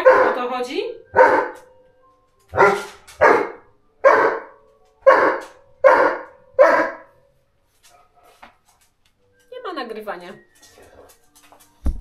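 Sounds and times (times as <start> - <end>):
dog barking: 0.0 - 0.5, 1.1 - 1.6, 2.5 - 7.1.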